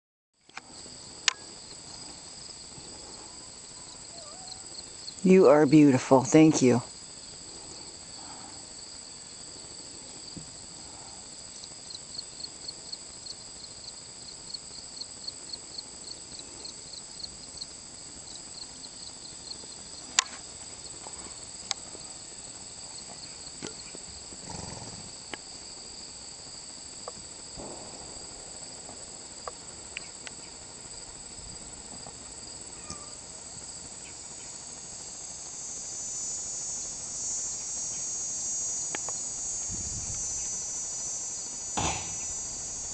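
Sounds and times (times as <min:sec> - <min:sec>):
insect chirps: 0:00.4 - 0:42.9
high-pitched insect chorus: 0:00.5 - 0:42.9.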